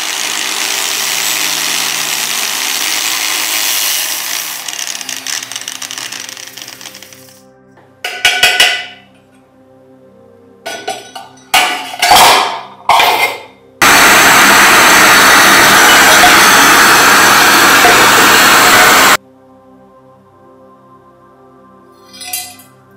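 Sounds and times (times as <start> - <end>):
metal tool knocking on lamp burner: 8.1 - 9.0
gas torch flame hissing: 13.8 - 19.2.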